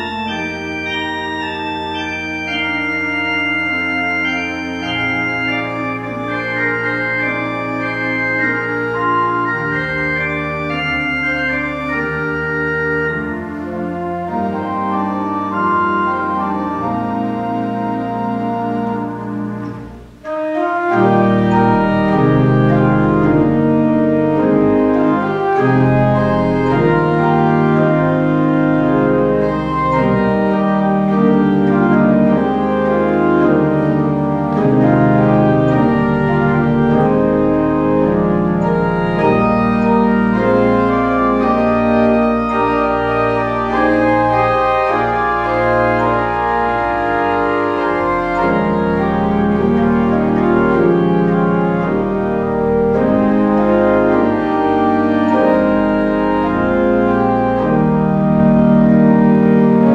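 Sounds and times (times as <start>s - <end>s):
church organ playing chords: 0.0s - 59.9s.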